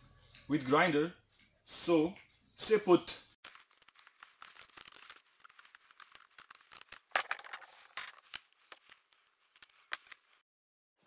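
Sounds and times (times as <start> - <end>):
metal clicks and rattles of tool handling: 3.5 - 10.2.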